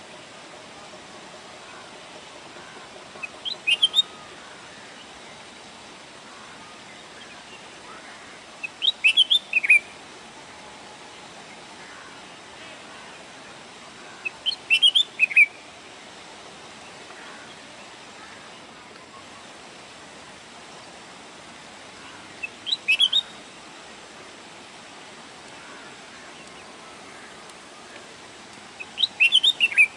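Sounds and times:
steady background hiss: 0:00.0 - 0:29.9
bird whistling song: 0:03.2 - 0:04.2, 0:08.6 - 0:09.9, 0:14.2 - 0:15.6, 0:22.4 - 0:23.3, 0:28.8 - 0:29.9.

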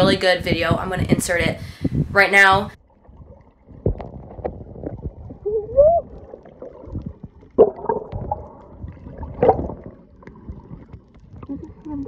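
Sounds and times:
dull underwater knocks: 0:02.9 - 0:12.0
underwater gurgling and bubbling: 0:02.9 - 0:12.0.

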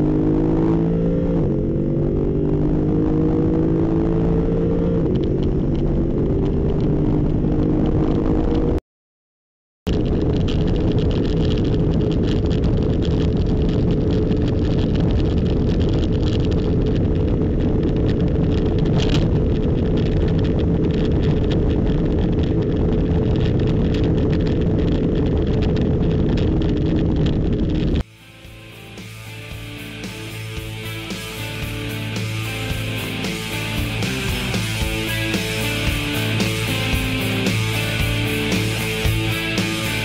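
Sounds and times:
sports car engine at high revs: 0:00.0 - 0:08.8
wind and road noise: 0:00.0 - 0:08.8, 0:09.9 - 0:40.0.

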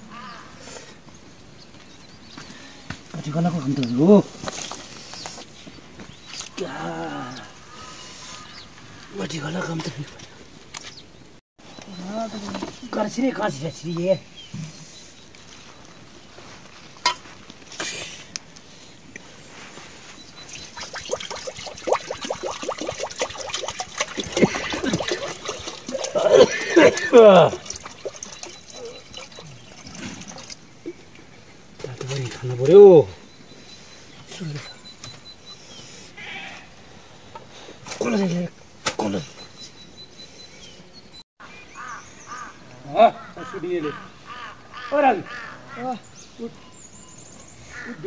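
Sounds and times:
water pouring and gurgling: 0:20.4 - 0:30.6.

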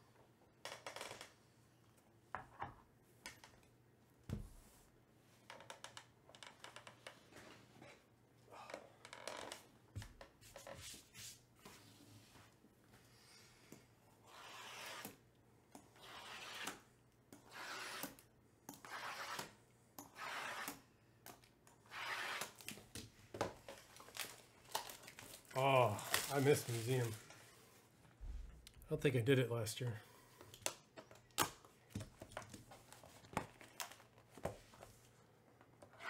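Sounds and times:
plastic shrink-wrap being stripped: 0:23.7 - 0:27.3.

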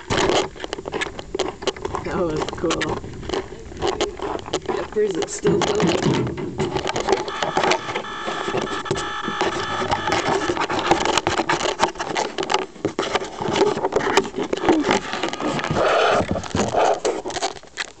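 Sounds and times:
clicks and knocks near microphone: 0:00.0 - 0:17.6
model plane being handled: 0:09.4 - 0:18.0.

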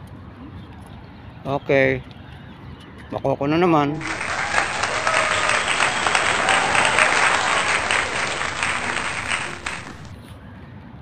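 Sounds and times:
crowd clapping: 0:04.0 - 0:10.1.

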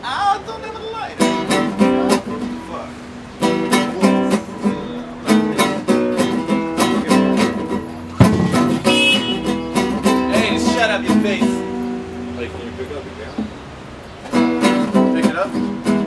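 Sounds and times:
classical guitar chords: 0:01.2 - 0:12.5, 0:14.3 - 0:16.0
sharp knock: 0:08.2 - 0:10.1.

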